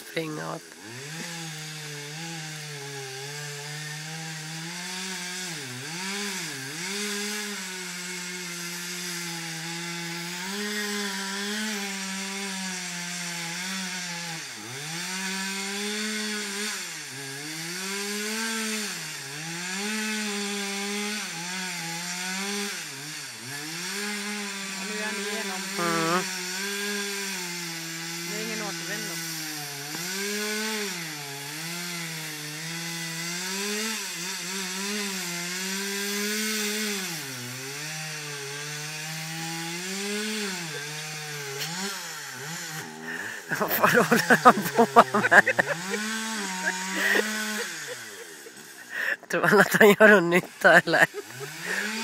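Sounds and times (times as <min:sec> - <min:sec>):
chainsaw cutting wood: 0:00.0 - 0:52.0.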